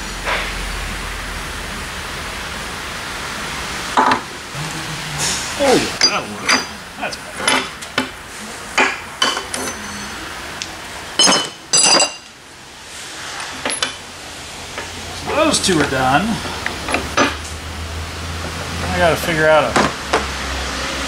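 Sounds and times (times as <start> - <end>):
metal parts clanking on workbench: 11.2 - 12.3.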